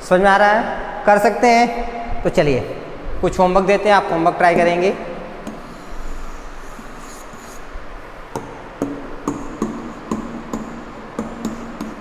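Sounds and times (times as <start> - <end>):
pen scratching on whiteboard: 5.5 - 7.8, 8.4 - 12.0
pen knocking on whiteboard: 8.4 - 12.0.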